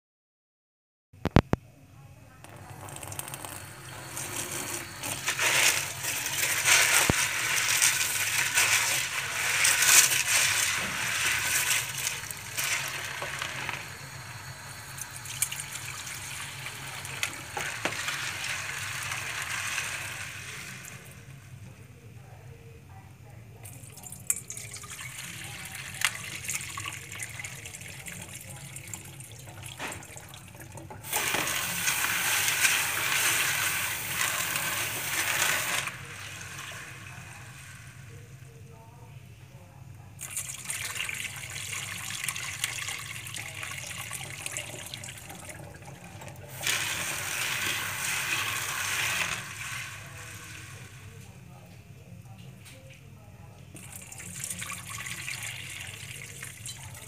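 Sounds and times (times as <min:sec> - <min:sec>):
beans stirred by hand: 0:02.4 - 0:21.6, 0:23.6 - 0:38.3, 0:40.2 - 0:51.5.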